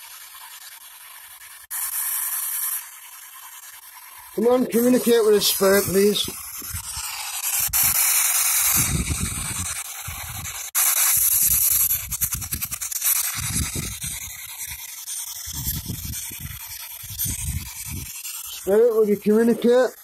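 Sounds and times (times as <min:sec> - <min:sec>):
radio static bursts: 0:04.4 - 0:14.2, 0:17.2 - 0:20.0.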